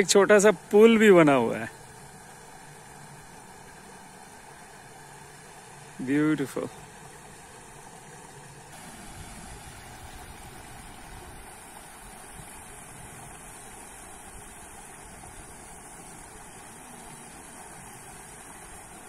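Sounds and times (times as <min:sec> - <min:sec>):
waterfall pouring into pool: 0:05.5 - 0:19.0.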